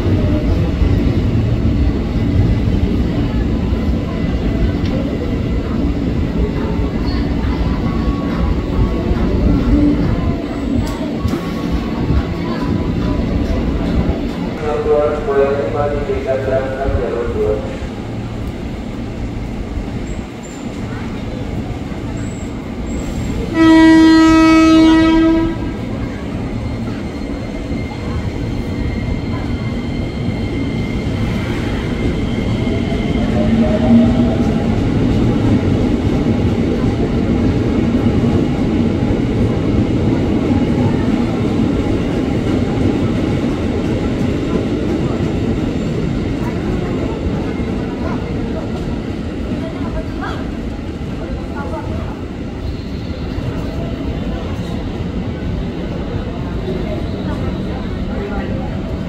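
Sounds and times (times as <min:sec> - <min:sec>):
train wheels rumbling on rails: 0:00.0 - 0:59.0
train horn blast: 0:23.4 - 0:25.8.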